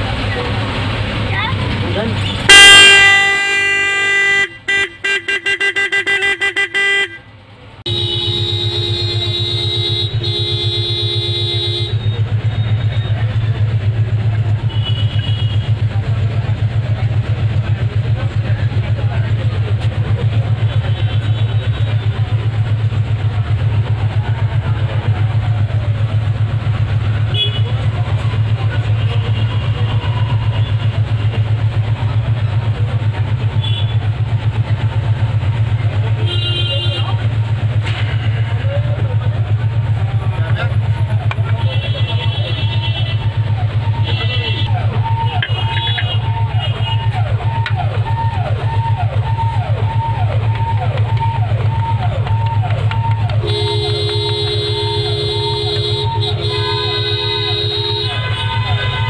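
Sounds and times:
vehicle horn blasts: 0:02.3 - 0:07.3, 0:07.9 - 0:13.3, 0:14.6 - 0:15.9, 0:20.6 - 0:22.3, 0:27.3 - 0:27.9, 0:33.5 - 0:34.1, 0:36.2 - 0:37.2, 0:41.5 - 0:47.0, 0:53.3 - 0:59.0
engine idling hum: 0:37.2 - 0:59.0.

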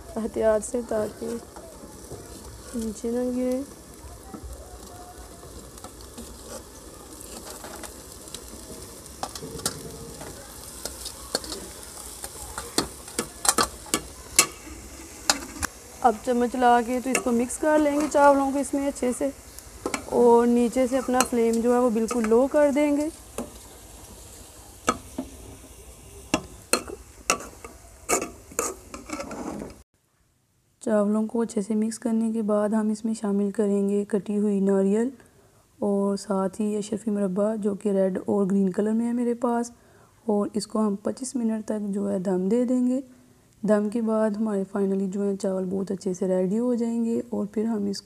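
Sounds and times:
soft sizzle from pot: 0:00.0 - 0:29.9, 0:30.8 - 0:48.0
faint steady hiss: 0:00.0 - 0:48.0
spoon scraping against steel pot: 0:26.4 - 0:29.8.

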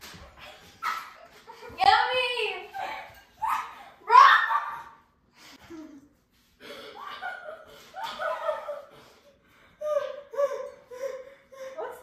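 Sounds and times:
girls laughing and giggling: 0:00.5 - 0:06.2, 0:06.8 - 0:12.0
girls talking: 0:01.6 - 0:05.0.

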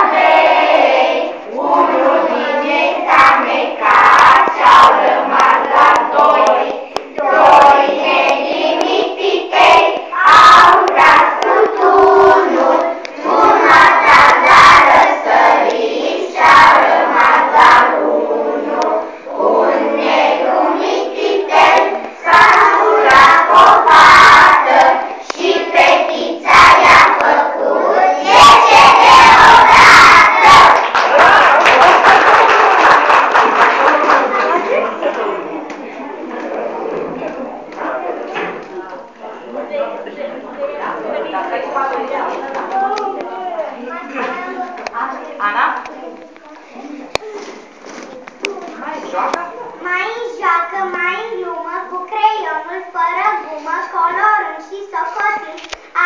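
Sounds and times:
children singing in unison: 0:00.0 - 0:31.0.

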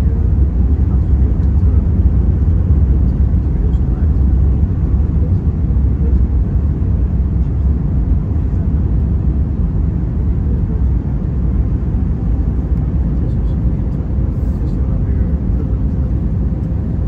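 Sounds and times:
airliner cabin rumble: 0:00.0 - 0:17.0.

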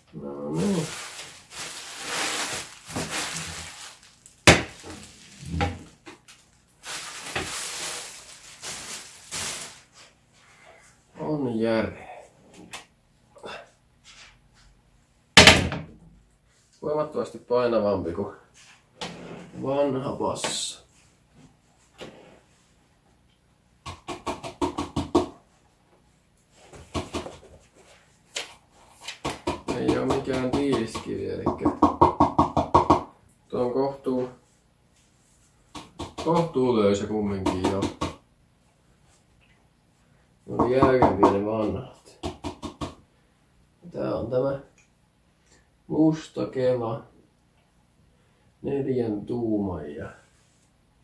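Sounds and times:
plastic wrapping crinkling: 0:00.5 - 0:10.1.

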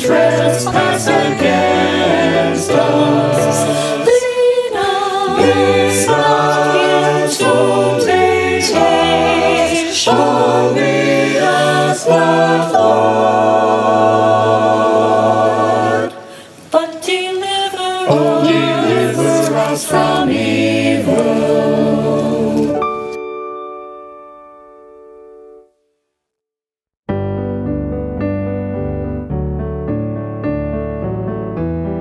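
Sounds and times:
choir singing in harmony: 0:00.0 - 0:23.2.

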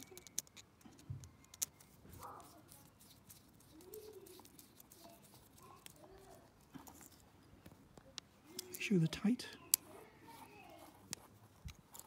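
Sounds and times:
screwdriver clicks and scrapes: 0:00.0 - 0:02.0, 0:11.0 - 0:12.0.

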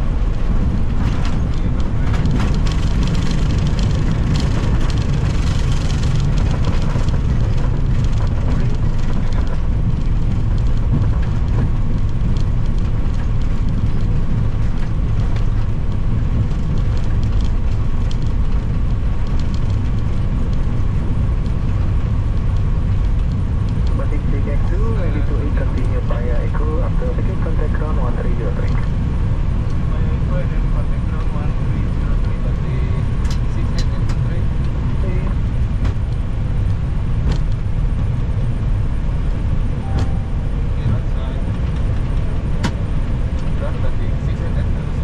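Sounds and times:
engines and wheels rumbling on runway: 0:00.0 - 0:45.0.

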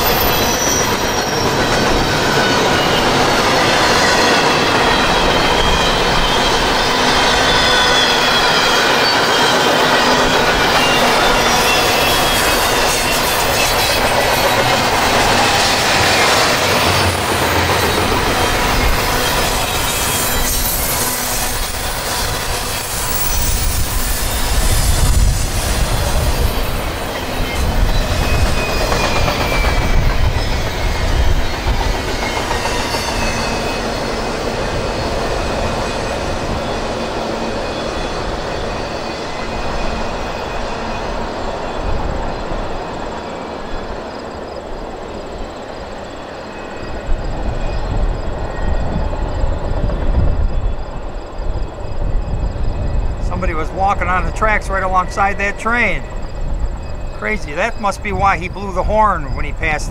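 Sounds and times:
thin wheel squeal: 0:00.0 - 0:17.2, 0:17.8 - 0:34.4
train wheels on rails: 0:00.0 - 0:59.9.

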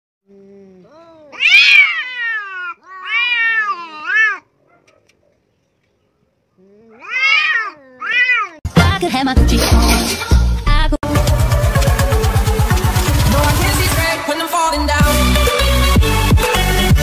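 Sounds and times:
cats yowling: 0:00.9 - 0:05.1, 0:06.8 - 0:08.6.

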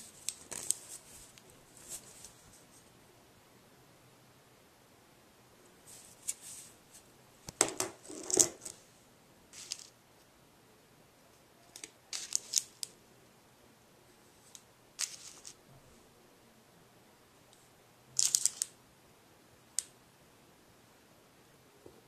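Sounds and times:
small items rattling in metal tin: 0:09.6 - 0:09.9.

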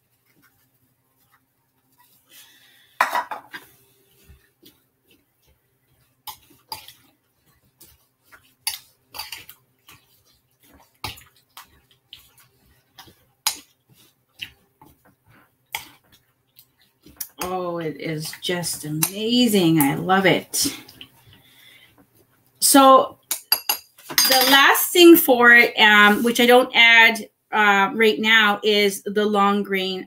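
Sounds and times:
utensil clinking and scraping dishes: 0:03.0 - 0:03.7, 0:23.3 - 0:24.7.

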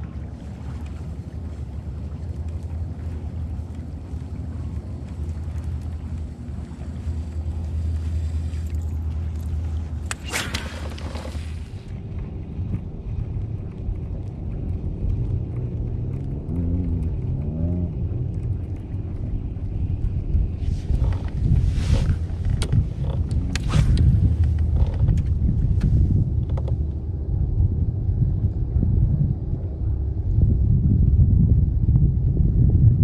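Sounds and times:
low rumble aboard kayak: 0:00.0 - 0:33.0.

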